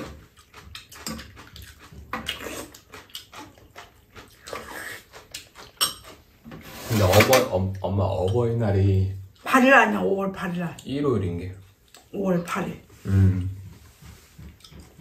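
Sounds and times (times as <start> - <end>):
chewing and mouth sounds: 0.0 - 6.4, 11.8 - 12.1, 14.3 - 15.0.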